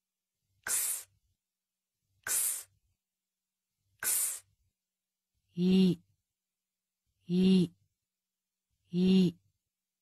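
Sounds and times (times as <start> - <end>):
person voicing breathy ks: 0.7 - 1.1, 4.0 - 4.5, 5.5 - 6.1, 7.2 - 7.8, 8.8 - 9.4.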